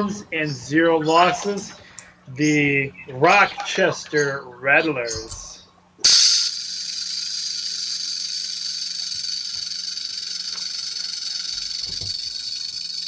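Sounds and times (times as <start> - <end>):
rattlesnake rattle: 6.0 - 13.0.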